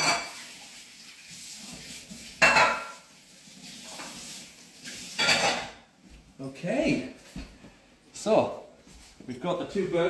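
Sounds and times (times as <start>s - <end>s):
kitchenware clattering: 0.0s - 0.6s, 2.3s - 3.1s, 4.8s - 6.6s
faint background noise: 0.0s - 10.0s.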